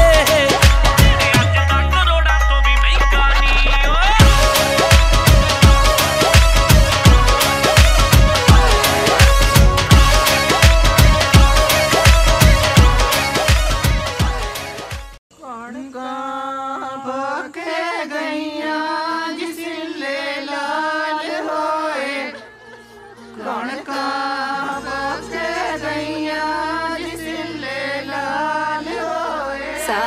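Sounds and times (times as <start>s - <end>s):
low bass: 0.0s - 14.4s
dance track: 0.0s - 15.2s.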